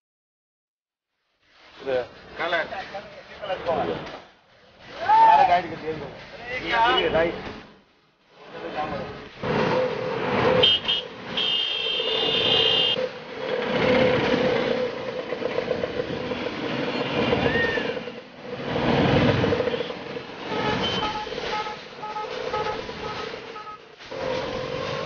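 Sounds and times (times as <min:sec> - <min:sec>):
heavy street traffic: 0:01.3 - 0:25.0
auto-rickshaw engine running: 0:08.8 - 0:25.0
high-pitched vehicle horn: 0:10.6 - 0:13.0, 0:19.7 - 0:23.9.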